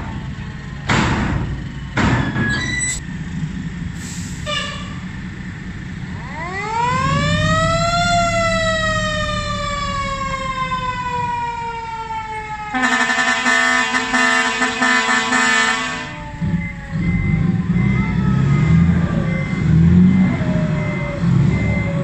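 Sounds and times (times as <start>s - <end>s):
diesel engine running: 0.0s - 22.0s
siren winding down: 6.2s - 22.0s
multi-tone air horns: 12.7s - 16.2s.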